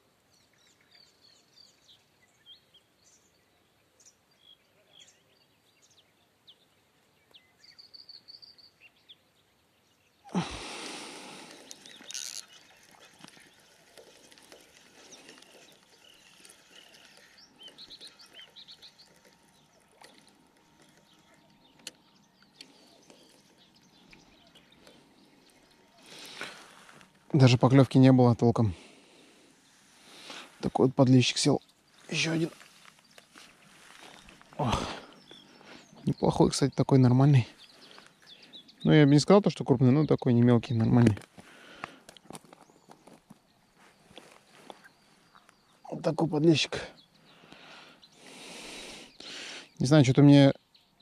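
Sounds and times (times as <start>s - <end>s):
small birds chirping: 0.0s - 51.0s
fishing reel winding: 11.5s - 21.9s.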